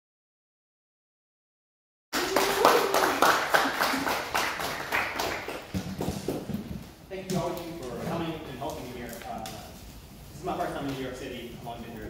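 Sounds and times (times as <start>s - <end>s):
audience clapping: 2.2s - 6.6s.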